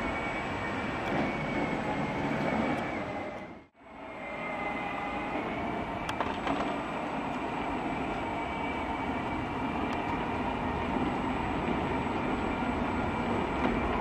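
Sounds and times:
electric motors whining: 0:00.0 - 0:14.0
plastic wheels rolling on asphalt: 0:05.5 - 0:14.0.

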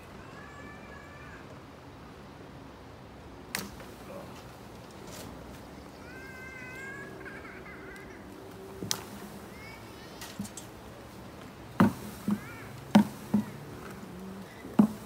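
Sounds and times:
hum of flying bees: 0:03.5 - 0:15.0
plastic bucket knocking on branches: 0:11.8 - 0:14.0, 0:14.7 - 0:15.0.

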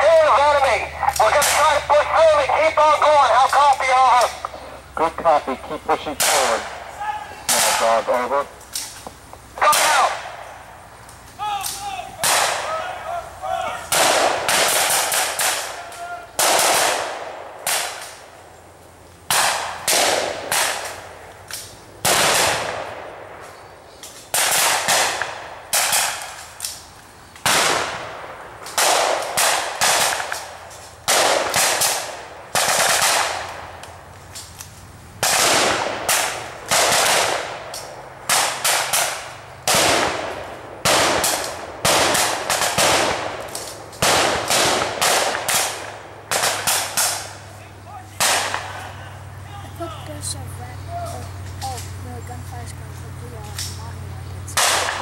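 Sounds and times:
blank gunfire shots and bursts: 0:06.1 - 0:06.8, 0:07.5 - 0:08.4, 0:12.2 - 0:12.8, 0:13.9 - 0:15.8, 0:16.4 - 0:18.3, 0:19.3 - 0:21.2, 0:22.0 - 0:23.5, 0:24.3 - 0:26.4, 0:27.4 - 0:33.8, 0:35.2 - 0:47.4, 0:48.2 - 0:48.9.

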